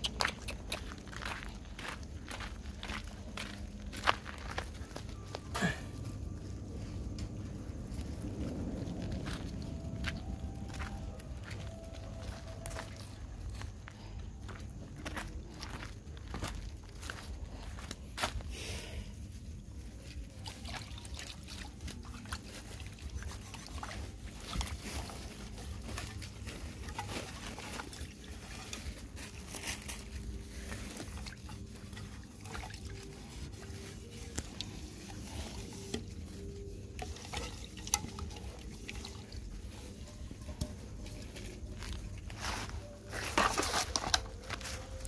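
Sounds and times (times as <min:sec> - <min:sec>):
dogs lapping wet food: 0:00.0 - 0:01.6.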